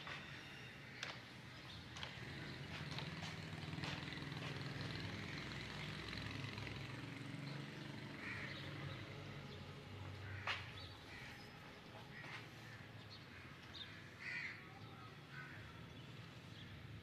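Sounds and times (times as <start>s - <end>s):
crow cawing: 8.2s - 8.6s, 10.2s - 11.4s, 13.4s - 14.6s, 15.3s - 15.6s.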